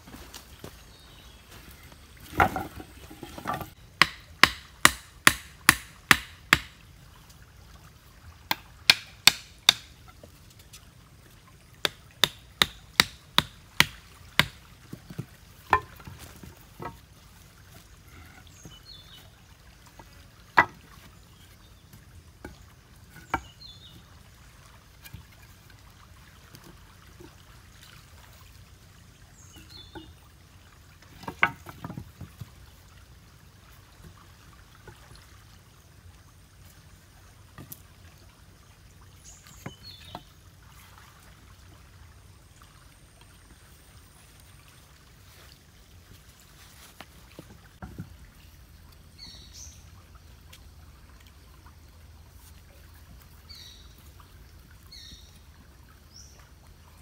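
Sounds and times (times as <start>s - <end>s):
faint flowing water: 0.0s - 57.0s
sharp chopping strikes: 4.0s - 6.7s.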